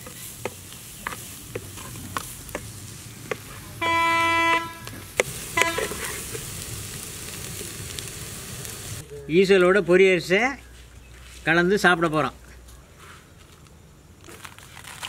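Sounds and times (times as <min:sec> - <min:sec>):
wooden ladle stirring: 0:00.0 - 0:03.6
termites crackling in a pot: 0:00.0 - 0:09.5, 0:14.2 - 0:15.0
horn honking: 0:03.8 - 0:04.9, 0:05.6 - 0:06.1.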